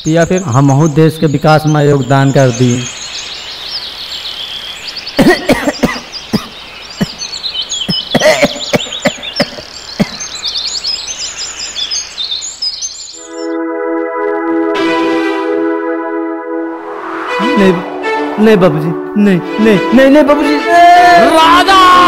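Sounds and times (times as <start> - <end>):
birds chirping: 0.0 - 14.6
man coughing hard: 5.2 - 7.2, 7.9 - 10.2.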